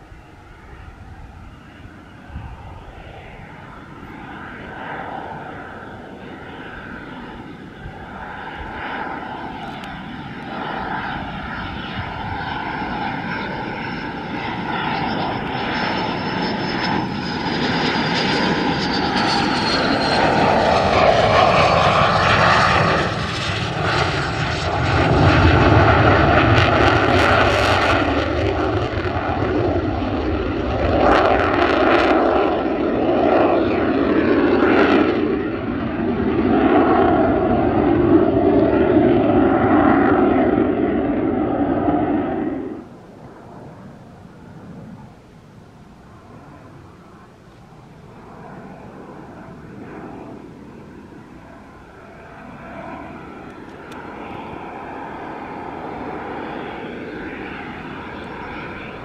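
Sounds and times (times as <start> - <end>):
high jet whine: 0.0 - 59.0
jet passing overhead: 0.0 - 59.0.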